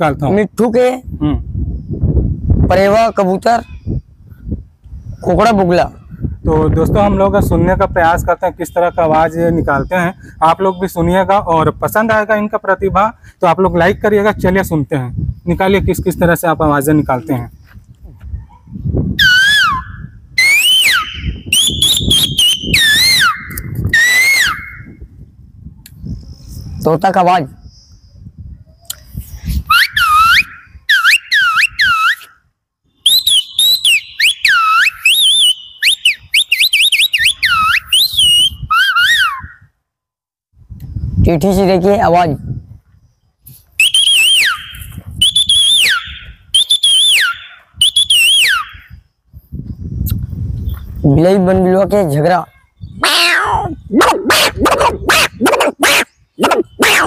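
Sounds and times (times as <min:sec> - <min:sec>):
man whistling bird call: 0:19.2 - 0:25.0, 0:28.7 - 0:32.4, 0:33.0 - 0:39.7, 0:43.8 - 0:49.0, 0:53.7 - 0:57.0.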